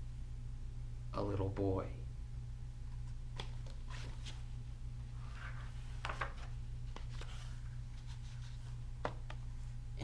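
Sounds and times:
steady low hum: 0:00.0 - 0:10.0
book pages rustling: 0:03.0 - 0:04.5, 0:05.2 - 0:09.4.

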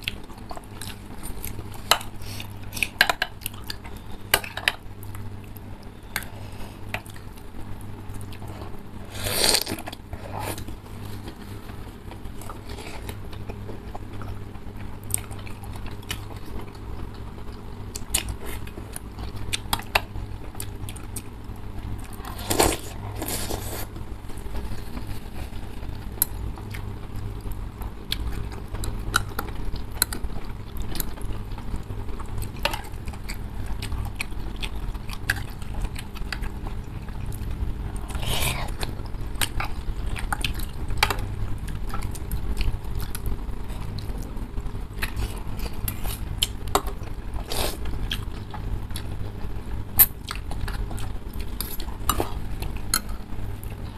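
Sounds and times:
chewing: 0:00.0 - 0:53.9
steady low hum: 0:00.0 - 0:53.9
noodle slurping: 0:09.0 - 0:10.7.

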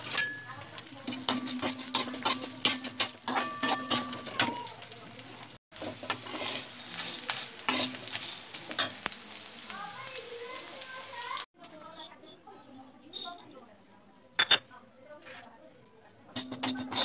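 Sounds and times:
metal skimmer scraping a pan: 0:00.0 - 0:04.7, 0:05.8 - 0:09.0, 0:16.4 - 0:17.0
sizzling in hot oil: 0:00.0 - 0:13.5, 0:16.3 - 0:17.0.

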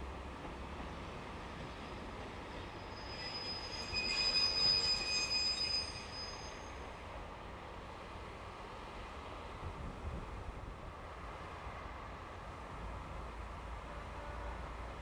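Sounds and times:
train wheels squealing: 0:01.6 - 0:07.0.

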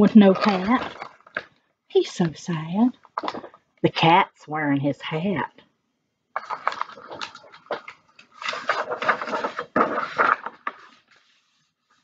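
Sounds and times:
book pages rustling: 0:00.0 - 0:01.5, 0:06.5 - 0:12.0.

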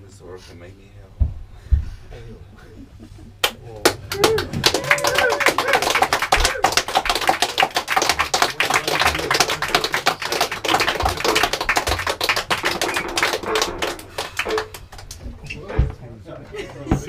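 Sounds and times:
audience applauding: 0:03.4 - 0:15.2.

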